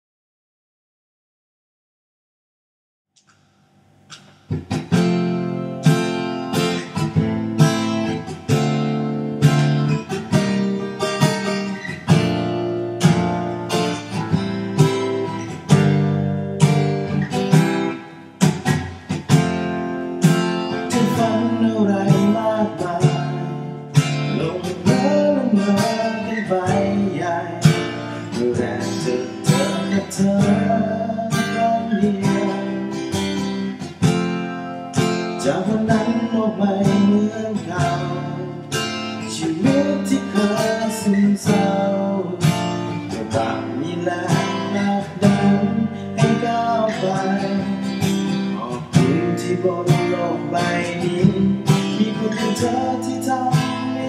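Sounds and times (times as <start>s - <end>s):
acoustic guitar strumming: 3.2s - 54.0s
man singing: 20.6s - 33.8s, 35.3s - 54.0s.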